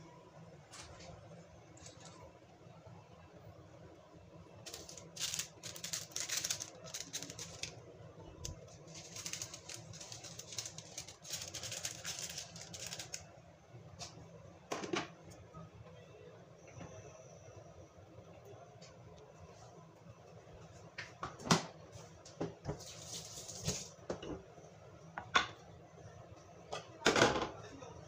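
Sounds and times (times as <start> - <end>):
clams crackling in frying pan: 4.7 - 7.8, 8.6 - 13.3.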